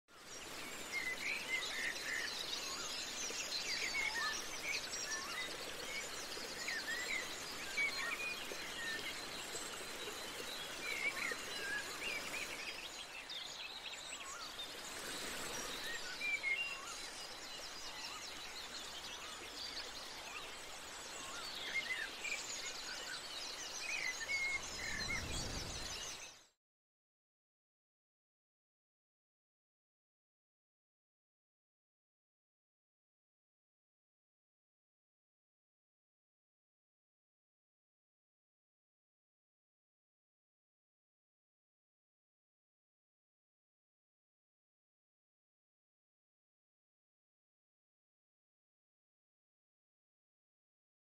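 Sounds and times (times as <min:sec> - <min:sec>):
steady outdoor hiss: 0:00.1 - 0:26.5
small birds chirping: 0:00.1 - 0:26.6.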